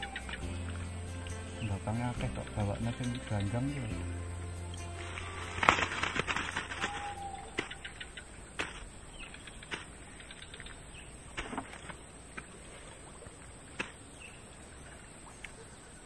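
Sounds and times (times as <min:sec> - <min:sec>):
faint bird chirps: 0:00.0 - 0:02.2, 0:06.8 - 0:12.2.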